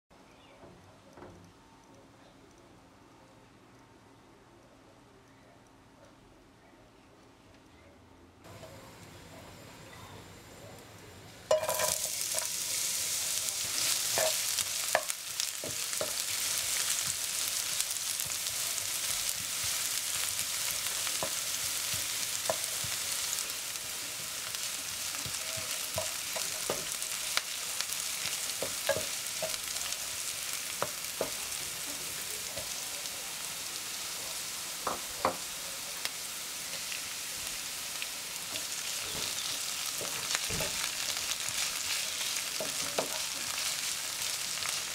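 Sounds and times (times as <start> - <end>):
onions sizzling in oil: 11.4 - 44.9.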